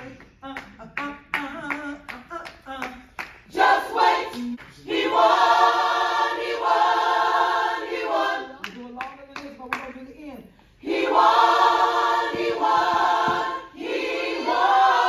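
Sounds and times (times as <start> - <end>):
hand claps: 0.0 - 3.6, 4.3 - 5.0, 8.6 - 10.1, 12.2 - 13.6
choir singing: 3.5 - 8.6, 10.8 - 15.0.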